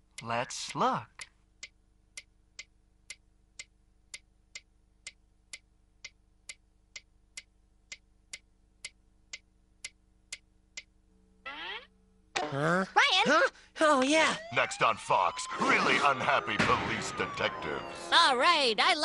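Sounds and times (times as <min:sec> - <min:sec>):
metronome ticking: 0:00.2 - 0:11.0.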